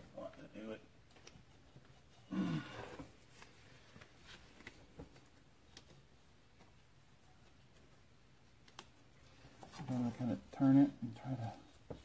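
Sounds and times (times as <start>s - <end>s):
faint clicks and metal taps: 8.6s - 9.9s.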